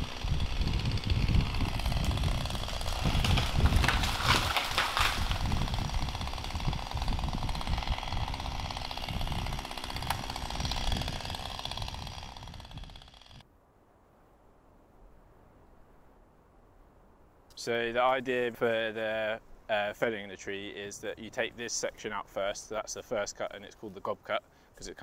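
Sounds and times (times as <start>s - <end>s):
chainsaw running: 0.0s - 13.4s
tree cracking and crashing down: 0.0s - 13.4s.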